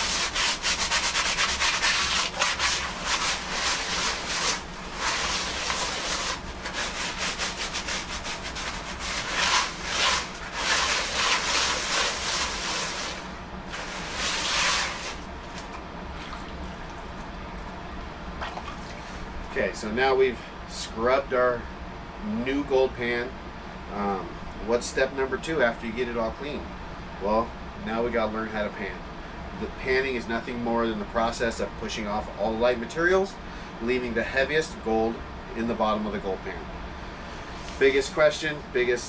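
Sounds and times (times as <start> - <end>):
sponge scrubbing plastic pan: 0.0 - 15.7.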